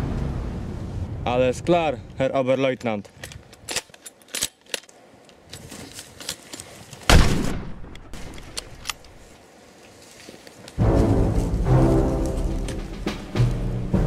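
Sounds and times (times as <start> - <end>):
metallic rifle bolt clicks: 3.0 - 5.0, 7.9 - 9.2
rifle shot: 7.1 - 8.8.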